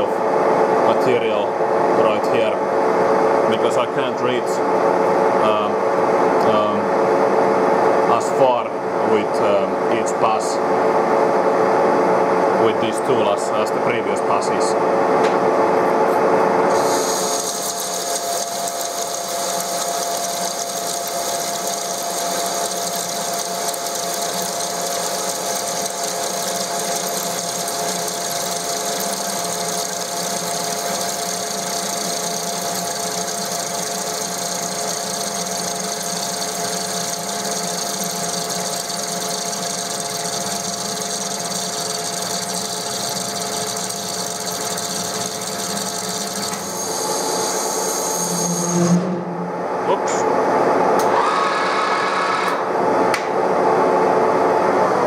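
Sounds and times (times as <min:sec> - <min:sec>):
lathe cutting steel: 0:16.7 - 0:48.6.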